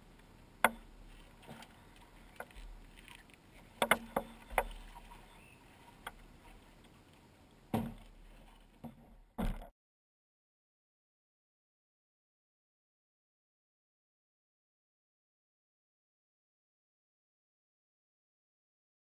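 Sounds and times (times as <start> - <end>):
knocks on a canoe hull: 3.8 - 4.8, 7.7 - 8.1, 8.8 - 9.7.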